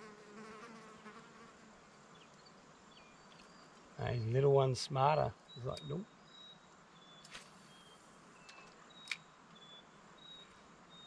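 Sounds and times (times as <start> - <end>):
background hiss: 0.0 - 11.0
insect chirping: 5.4 - 11.0.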